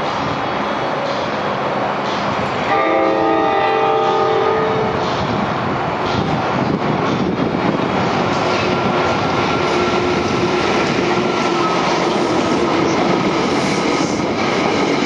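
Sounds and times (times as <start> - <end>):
train rolling and clattering: 0.0 - 15.0
train horn chord: 2.7 - 4.9.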